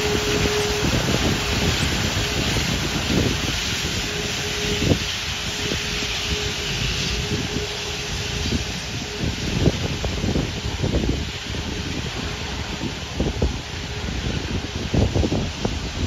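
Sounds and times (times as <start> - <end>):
jet engines taxiing: 0.0 - 16.0
wind buffeting microphone: 0.0 - 16.0.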